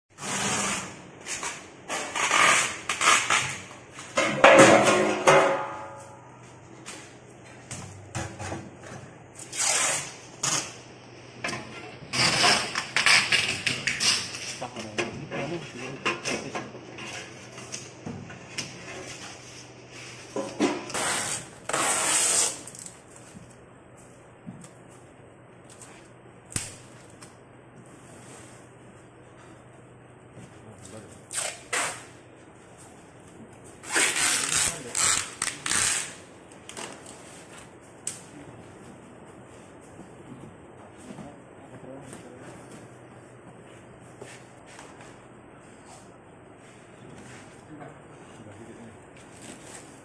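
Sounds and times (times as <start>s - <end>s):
loud metal clang: 4.3s - 6.3s.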